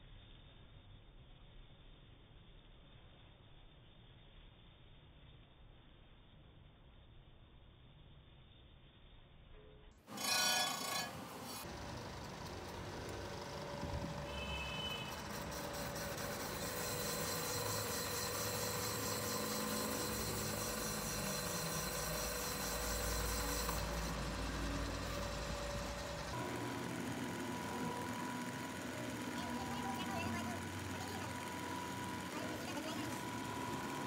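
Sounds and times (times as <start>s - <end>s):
boring machine running: 10.1s - 34.0s
cutter scraping in bore: 10.1s - 34.0s
loud ringing tone: 10.1s - 34.0s.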